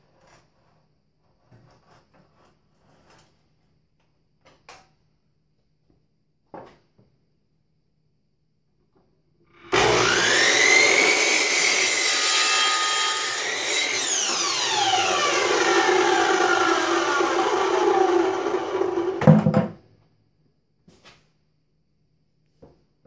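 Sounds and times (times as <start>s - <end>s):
saw blade winding down: 9.6s - 19.2s
miter saw cutting wood: 9.6s - 19.3s
knocks: 19.2s - 19.8s.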